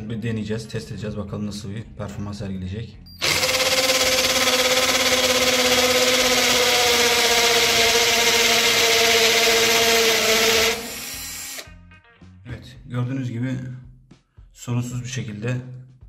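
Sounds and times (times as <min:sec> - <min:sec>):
hammer drill drilling into wall: 0:03.2 - 0:11.7.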